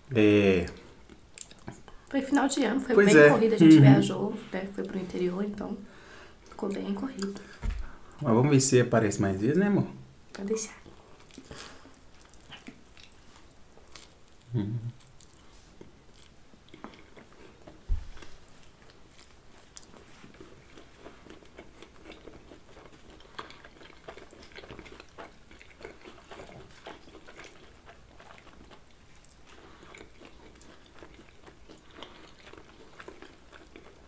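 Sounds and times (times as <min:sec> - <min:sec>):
people chewing: 0:00.4 - 0:02.1, 0:10.8 - 0:34.0
low thump: 0:07.6 - 0:07.9.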